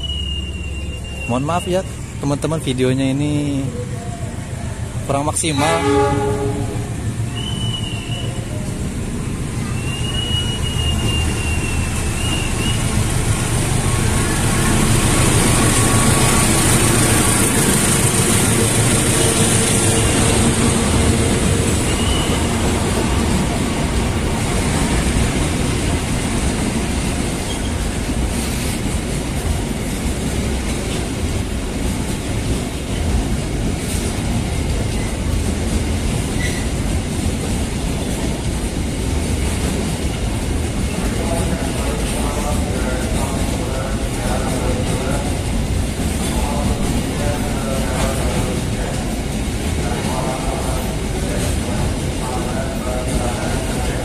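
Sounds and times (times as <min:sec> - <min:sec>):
brief high squeal: 0:00.0 - 0:01.4, 0:09.8 - 0:12.8
train wheels clattering on rails: 0:05.7 - 0:54.0.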